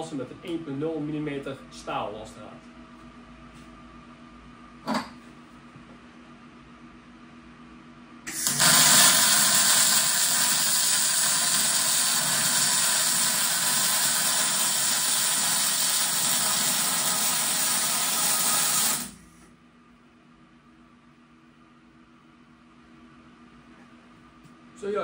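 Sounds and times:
welding arc sizzling: 8.3 - 19.2.

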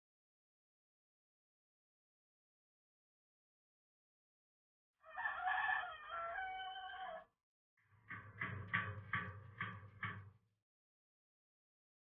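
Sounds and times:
rooster crowing: 5.0 - 7.3.

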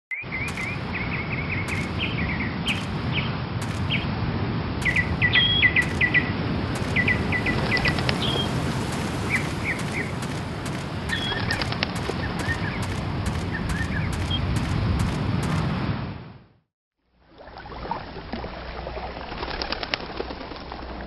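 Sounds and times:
small birds chirping: 0.1 - 4.1, 4.8 - 14.6.

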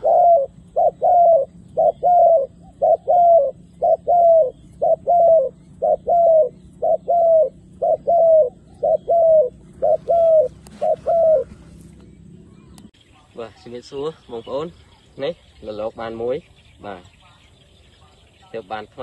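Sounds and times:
dove cooing: 0.0 - 12.8.

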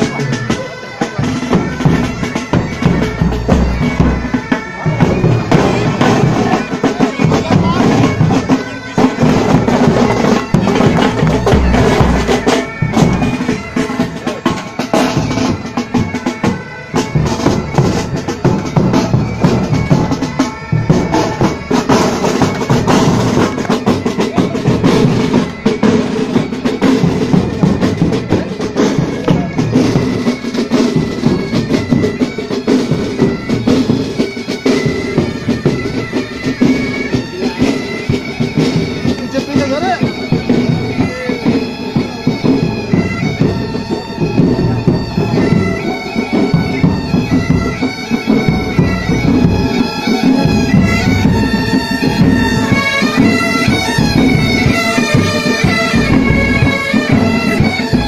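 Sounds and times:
bagpipes drone and melody: 0.0 - 58.0
marching drums beat: 0.0 - 58.0.

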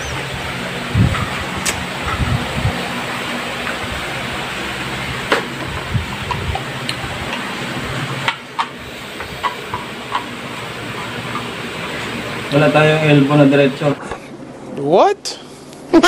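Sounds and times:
low hum: 0.0 - 12.6.

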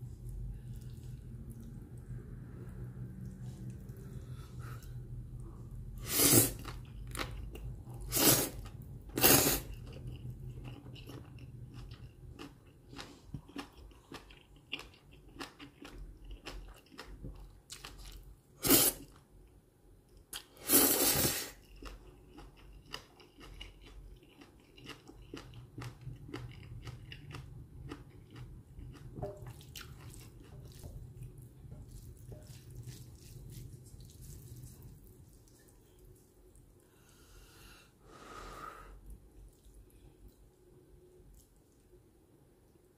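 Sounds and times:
slurping noodles: 6.0 - 6.8, 8.0 - 9.8, 20.6 - 21.6
wet chewing: 6.4 - 18.2, 21.6 - 36.8.

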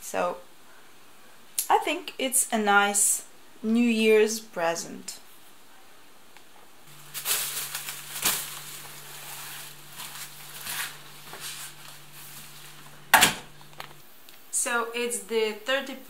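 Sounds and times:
low steady hum: 0.0 - 16.0
padded coat rustling: 6.9 - 13.7
plastic shopping bags rustling: 6.9 - 14.0
sharp knock: 13.1 - 13.5.

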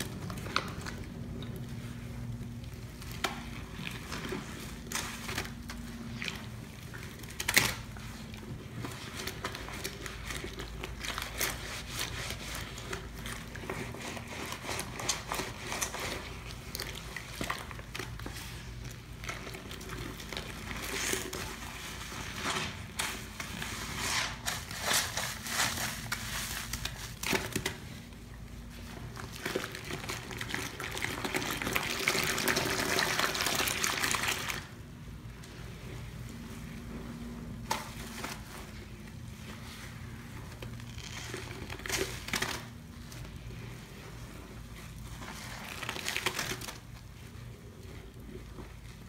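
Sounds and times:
sponge squishing in water: 0.0 - 49.0
steady low hum: 34.6 - 49.0.

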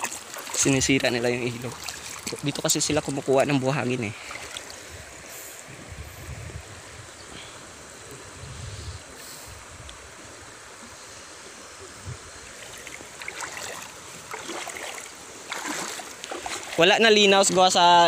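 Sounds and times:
net splashing in water: 0.0 - 0.7, 1.6 - 2.5, 12.7 - 16.9
river flowing over rocks: 0.0 - 5.7, 9.0 - 18.0
wind on microphone: 4.8 - 10.2, 11.8 - 12.6.

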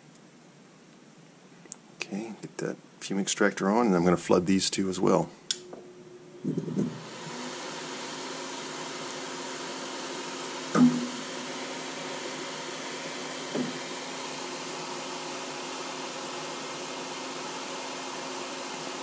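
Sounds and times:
extractor fan running: 5.1 - 19.0.

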